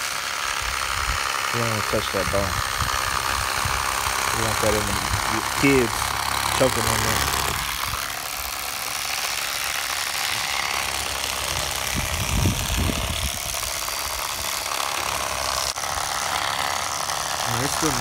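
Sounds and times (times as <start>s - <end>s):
wind on the microphone: 12.0s - 13.4s.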